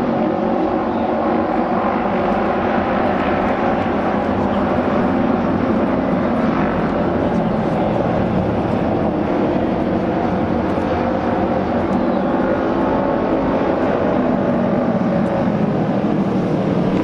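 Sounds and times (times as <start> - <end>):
racing motorcycle engines: 0.0 - 17.0.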